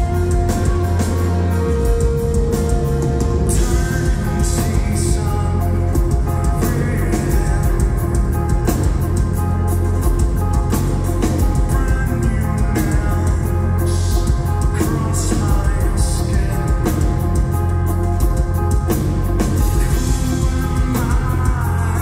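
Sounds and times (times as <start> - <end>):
metal band playing live: 0.0 - 22.0.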